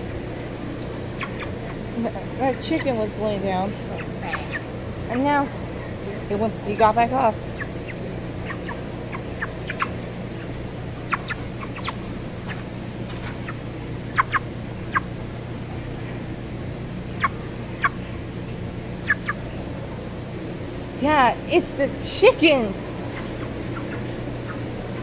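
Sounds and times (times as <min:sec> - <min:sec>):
chickens giving sharp calls: 0:00.0 - 0:05.0, 0:07.3 - 0:15.2, 0:17.1 - 0:18.2, 0:18.9 - 0:20.8, 0:22.8 - 0:25.0
steady low hum: 0:00.0 - 0:25.0.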